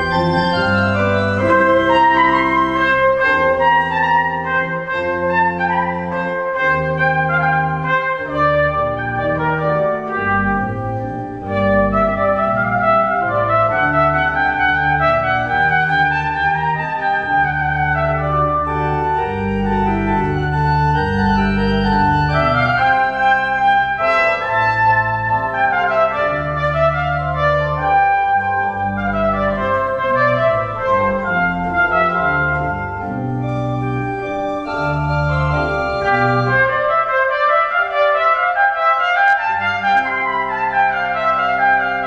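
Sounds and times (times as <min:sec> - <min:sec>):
pipe organ: 0:00.0 - 0:42.0
trumpet: 0:00.0 - 0:42.0.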